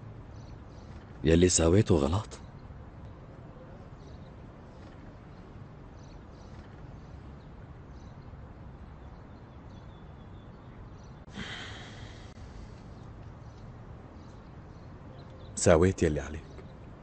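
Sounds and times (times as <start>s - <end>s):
low background noise: 0.0s - 17.0s
man sighing: 11.3s - 12.4s.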